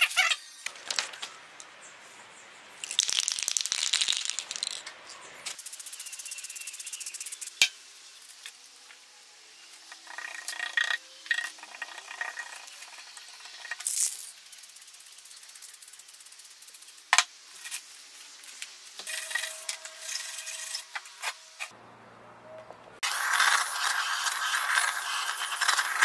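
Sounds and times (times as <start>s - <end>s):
aerosol spray paint hiss: 23.1s - 26.0s
paper stencil rubbing on wood: 23.1s - 26.0s.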